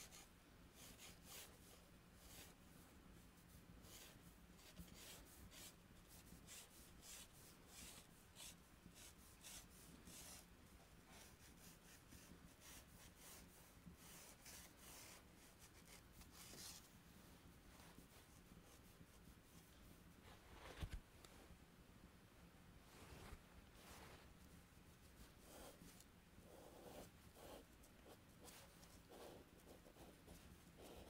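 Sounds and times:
chalk scratching on paper: 0.0s - 2.6s, 3.4s - 10.5s, 11.1s - 16.9s, 24.9s - 31.0s.

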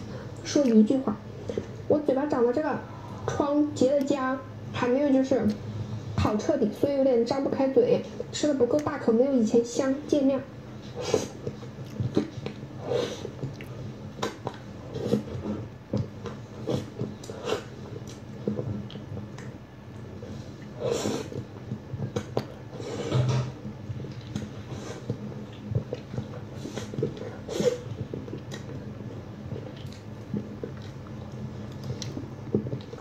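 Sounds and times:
person chewing wetly: 11.2s - 33.0s.

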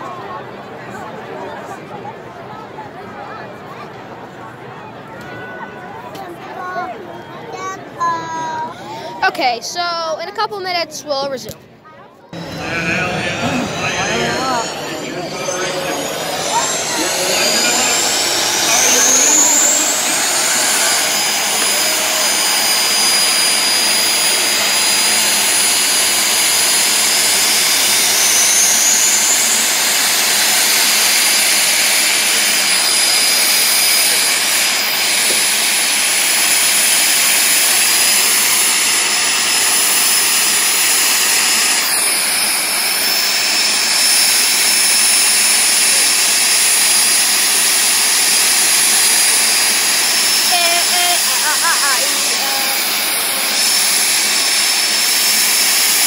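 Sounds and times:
jet turbine engines roaring: 12.3s - 56.0s.

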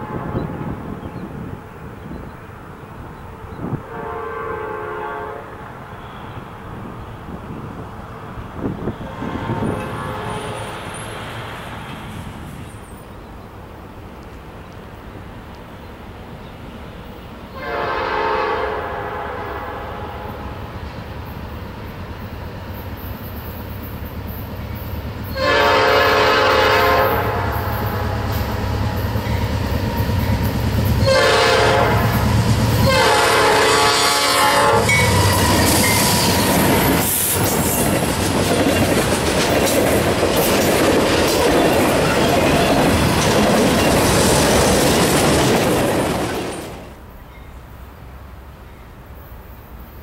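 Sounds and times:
locomotive air horn blasts: 0.0s - 0.6s, 3.6s - 6.7s, 8.9s - 10.8s, 17.6s - 20.5s, 25.3s - 28.7s, 31.0s - 36.4s
train rumble passing: 0.0s - 50.0s
wheels clacking over rail joints: 34.8s - 47.1s.

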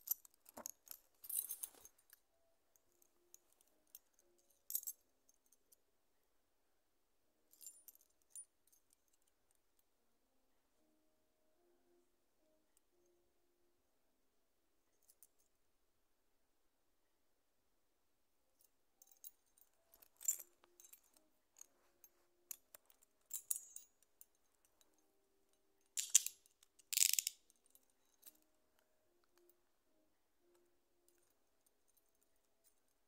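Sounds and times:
keys jingling: 25.9s - 28.4s.

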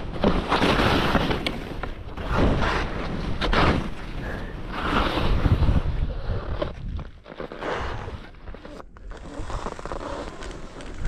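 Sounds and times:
skis swooshing through snow: 0.0s - 11.0s
wind on microphone: 4.2s - 9.8s.

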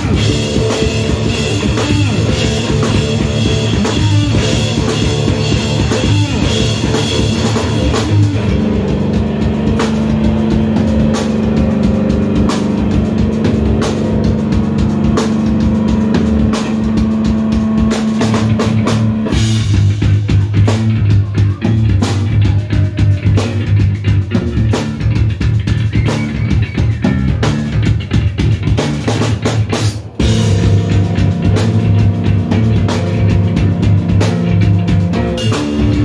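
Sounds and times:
busy drumming: 0.0s - 36.0s
electric bass riffs: 0.0s - 36.0s.

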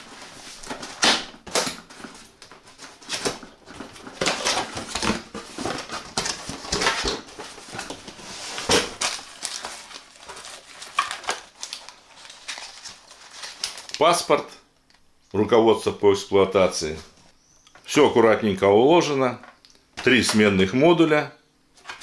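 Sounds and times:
cardboard and packaging rustling: 0.0s - 14.2s.

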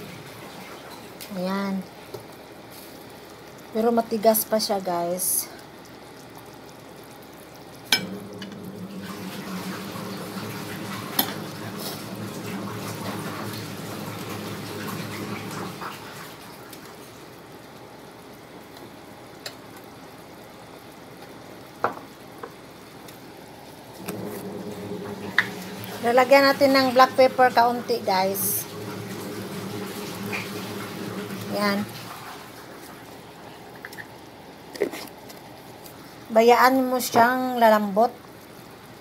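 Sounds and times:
broth boiling in a pot: 0.0s - 39.0s.

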